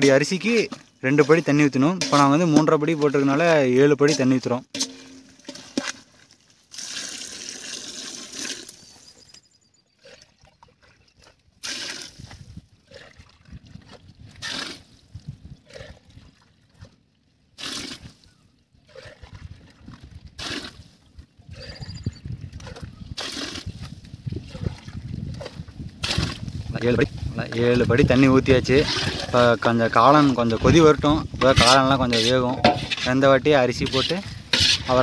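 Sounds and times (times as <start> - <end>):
water pouring into a metal pot: 6.7 - 9.3.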